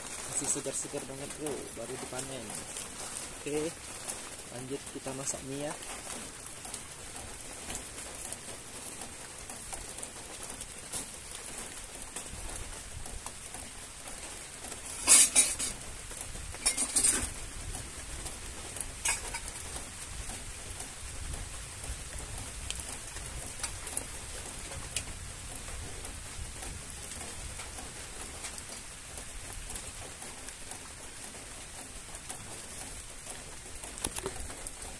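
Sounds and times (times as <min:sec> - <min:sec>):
rain patter: 0:00.0 - 0:34.9
metal pot and utensils clattering: 0:14.9 - 0:15.8, 0:16.6 - 0:17.4, 0:19.0 - 0:19.7.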